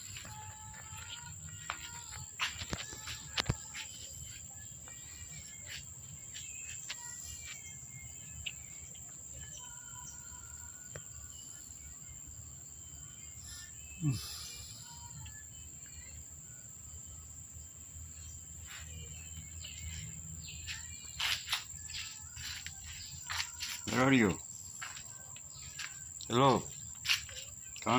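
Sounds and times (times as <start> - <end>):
high insect drone: 0.0 - 27.9.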